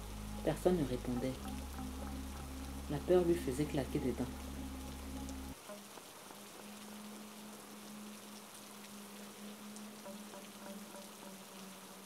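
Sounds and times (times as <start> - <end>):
low steady hum: 0.0 - 5.6
faint rain-like hiss: 0.0 - 12.0
small crackles: 4.2 - 12.0.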